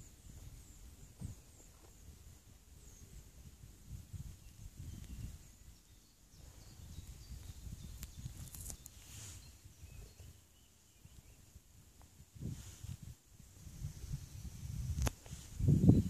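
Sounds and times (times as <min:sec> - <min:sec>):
faint bird chirps: 0:00.0 - 0:11.7.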